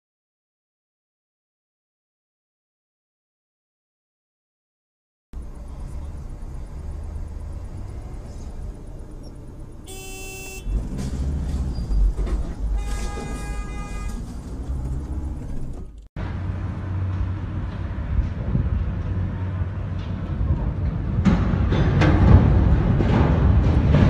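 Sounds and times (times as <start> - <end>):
road and engine rumble: 5.4 - 24.0
vehicle horn blasts: 9.8 - 10.9, 12.7 - 14.6.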